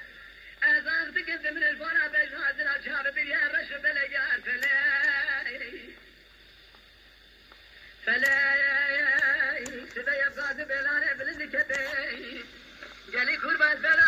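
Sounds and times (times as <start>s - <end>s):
person singing unaccompanied: 8.0s - 14.0s.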